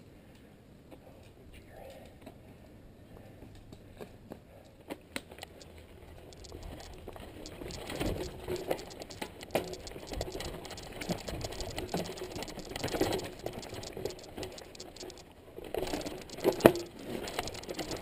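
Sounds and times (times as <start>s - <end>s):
mountain bike rattling over rocks: 5.3s - 18.0s.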